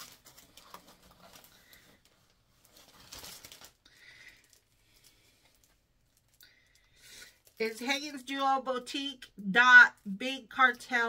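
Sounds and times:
packaging rustling by hand: 0.0 - 7.9.

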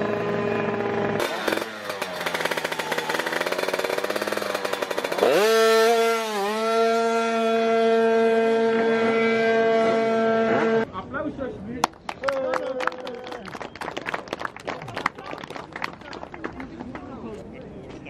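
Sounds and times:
two-stroke moped engine revving: 0.0 - 10.9.

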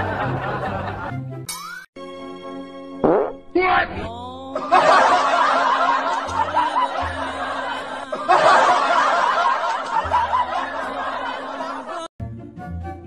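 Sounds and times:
canned audience laughter: 0.0 - 1.3, 4.6 - 12.1.

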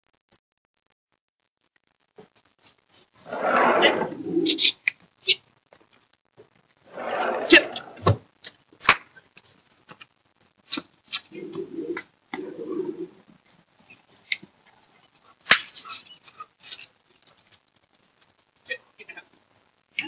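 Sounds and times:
dove cooing: 3.7 - 4.7, 11.3 - 13.2.

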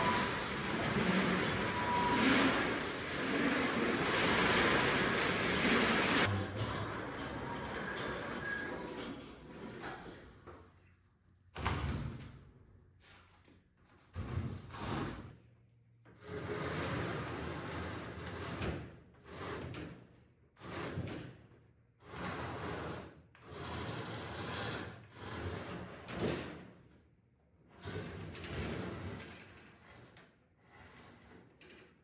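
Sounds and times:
wooden feeder scraping concrete floor: 16.2 - 18.6, 22.0 - 26.3.

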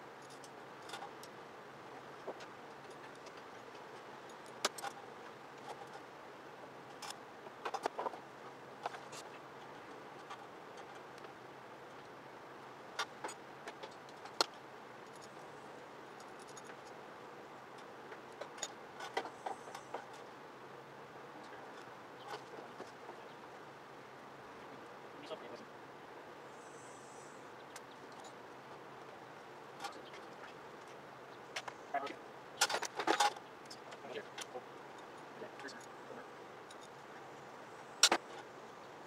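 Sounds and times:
steady background hiss: 0.0 - 39.0.

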